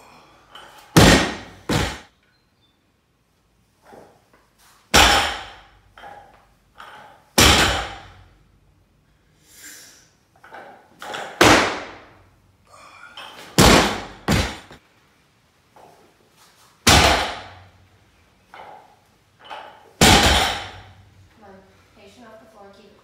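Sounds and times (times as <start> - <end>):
barbell slamming on platform: 7.4 - 8.1, 16.9 - 17.6, 20.0 - 21.0.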